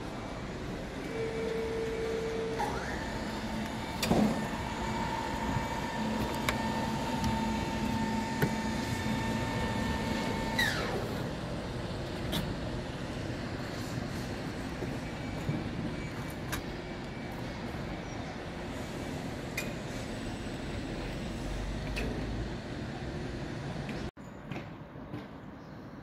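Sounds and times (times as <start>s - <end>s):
machine motor whining: 0.2s - 12.0s.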